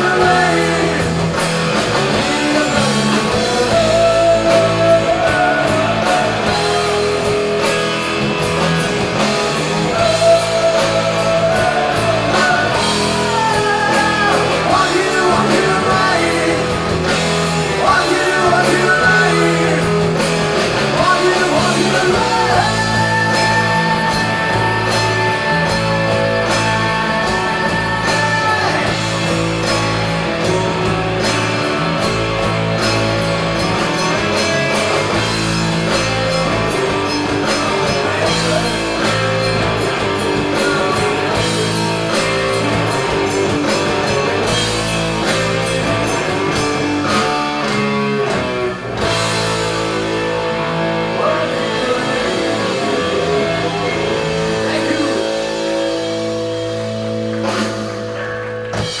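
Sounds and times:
rock band playing live: 0.0 - 59.0.

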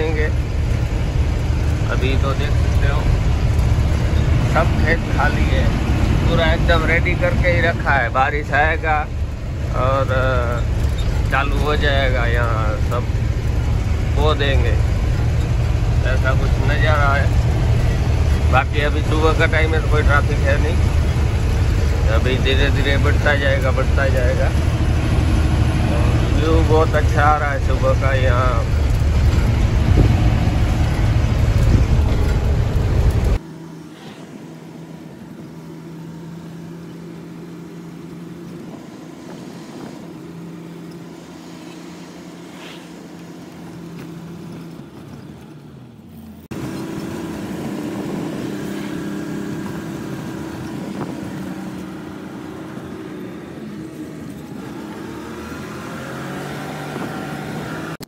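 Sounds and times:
truck engine inside cab: 0.0 - 58.0.

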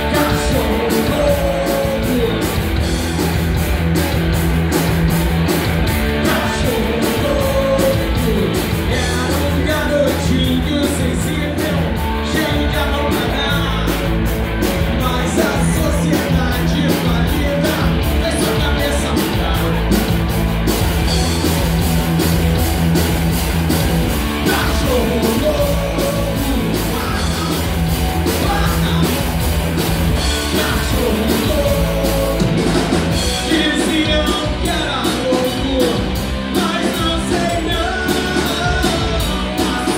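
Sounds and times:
person singing: 0.0 - 2.6, 6.1 - 14.1, 24.4 - 29.2, 30.3 - 39.9
bass guitar: 0.0 - 39.9
drums and cymbals: 0.0 - 39.9
electric guitars: 0.0 - 39.9.

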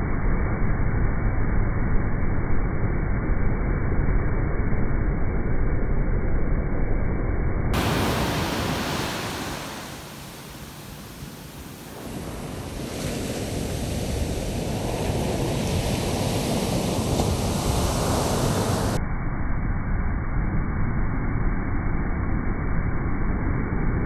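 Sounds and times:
heavy surf crashing on beach: 7.8 - 19.0.

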